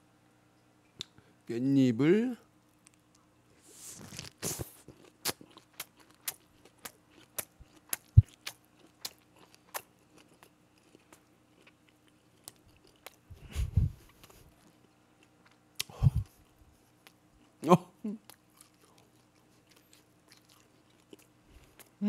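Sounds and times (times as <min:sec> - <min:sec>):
wet chewing mouth clicks: 0:04.1 - 0:13.2.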